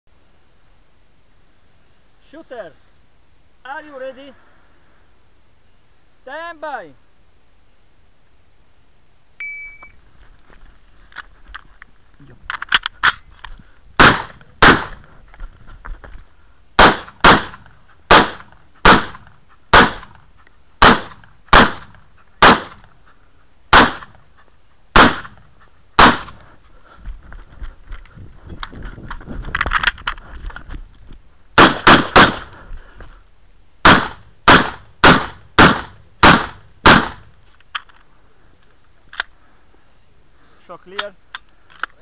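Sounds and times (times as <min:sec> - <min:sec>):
rifle shots: 0:14.0 - 0:15.0, 0:16.8 - 0:20.2, 0:20.8 - 0:22.9, 0:23.7 - 0:24.2, 0:25.0 - 0:25.4, 0:26.0 - 0:26.4, 0:31.6 - 0:32.6, 0:33.8 - 0:37.3.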